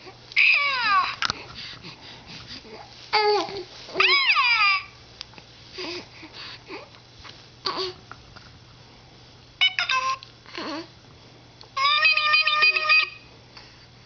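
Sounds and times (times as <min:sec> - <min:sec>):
electronic toy tones: 0:11.8 - 0:13.2.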